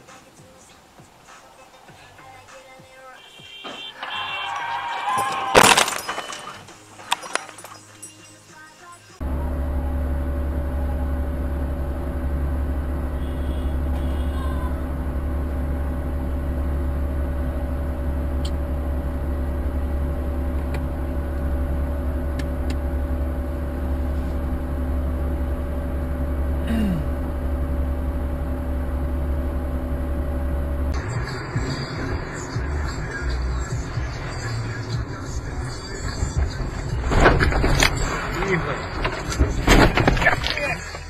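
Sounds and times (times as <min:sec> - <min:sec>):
car engine idling: 0:09.1 - 0:41.0.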